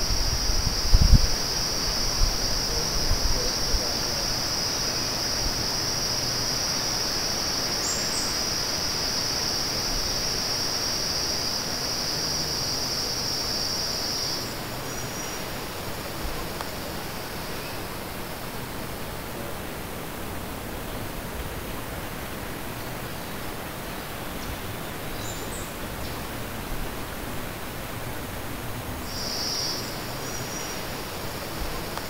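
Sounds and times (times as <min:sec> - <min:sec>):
high-pitched insect drone: 0:00.0 - 0:15.4
constant hiss: 0:00.0 - 0:32.0.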